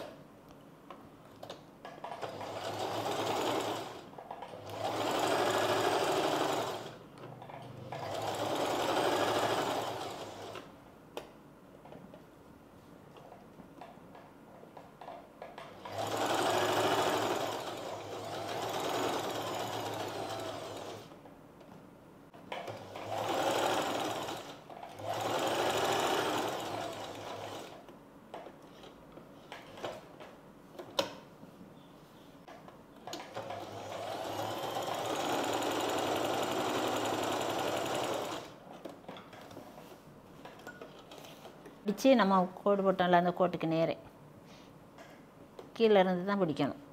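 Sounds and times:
sewing machine stitching: 2.0s - 10.7s, 15.6s - 21.1s, 22.5s - 27.8s, 33.1s - 38.6s.

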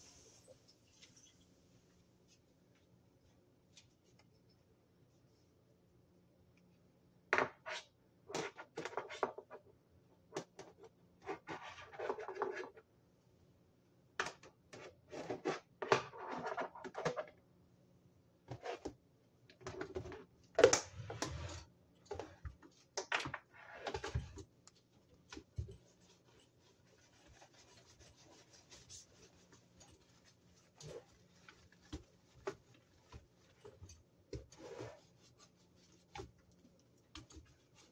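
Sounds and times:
hand scrubbing soft rubbing: 24.9s - 33.8s, 34.5s - 36.4s
scraping and rubbing: 25.4s - 37.9s.

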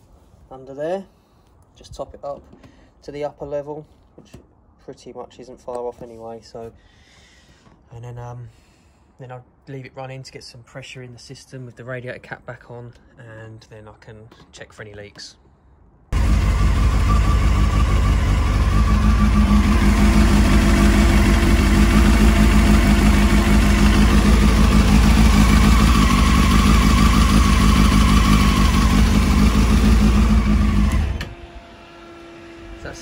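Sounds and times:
motorcycle engine idling: 16.2s - 31.7s.

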